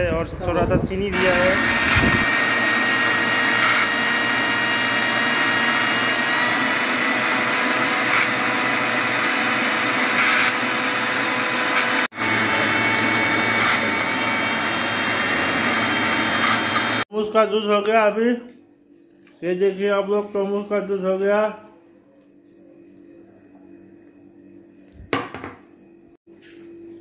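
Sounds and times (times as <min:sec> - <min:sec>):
blender crushing ice: 0:01.1 - 0:17.0.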